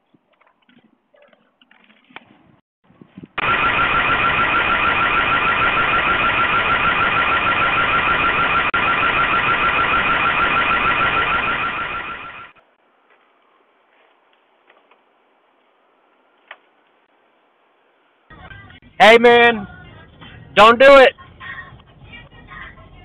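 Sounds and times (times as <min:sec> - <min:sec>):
pulsing electronic alarm siren: 0:03.4 - 0:12.6.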